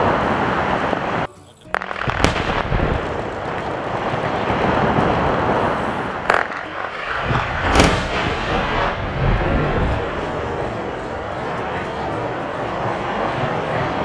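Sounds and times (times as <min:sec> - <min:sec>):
sharp explosive cracks: 0:01.8 - 0:11.1
blasting charges rumbling: 0:01.8 - 0:14.0.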